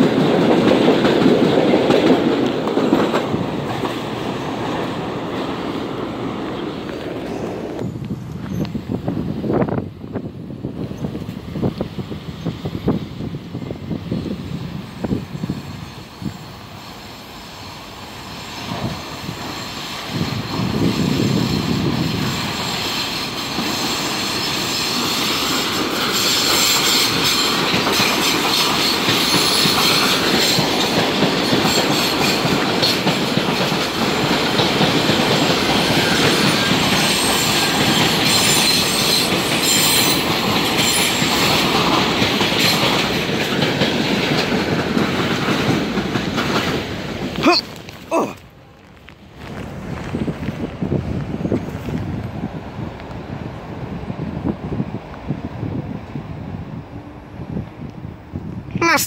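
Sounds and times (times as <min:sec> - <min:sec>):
subway train rumbling past: 0:00.0 - 0:59.0
faint wheel squeal: 0:07.3 - 0:08.8.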